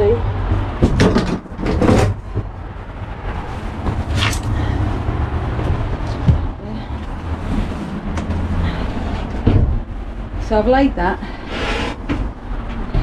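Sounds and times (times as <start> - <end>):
camera handling rumble and rustling: 3.6 - 4.8.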